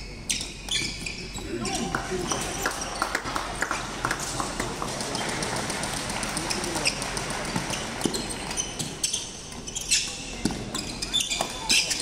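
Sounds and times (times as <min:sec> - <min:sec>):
shoes squeaking on wooden court: 0:00.0 - 0:03.1, 0:06.3 - 0:12.0.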